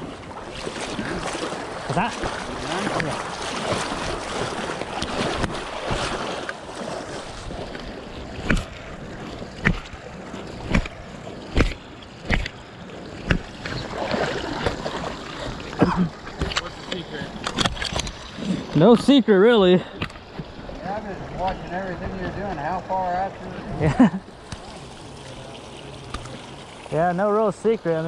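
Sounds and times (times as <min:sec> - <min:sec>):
river water rushing: 0:00.0 - 0:28.0.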